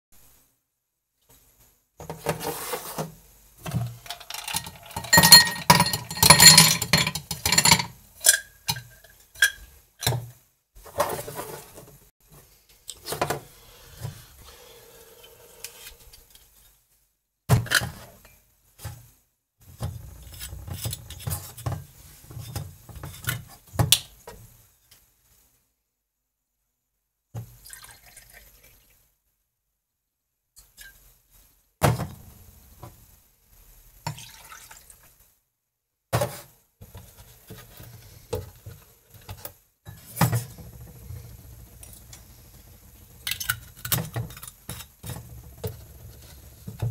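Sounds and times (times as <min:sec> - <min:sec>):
ice cubes clattering into glass: 0:04.1 - 0:08.4
glassware clinking: 0:04.4 - 0:09.6
liquid pouring into shot glass: 0:27.6 - 0:28.8.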